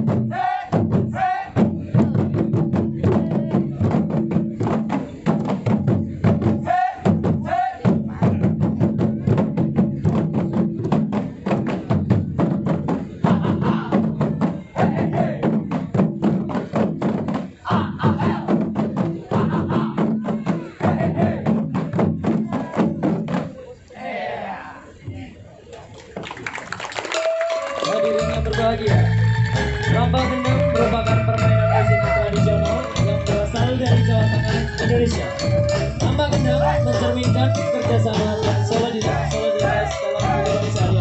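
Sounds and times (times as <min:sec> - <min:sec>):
barrel drums played fast: 0:00.0 - 0:23.4, 0:28.6 - 0:41.0.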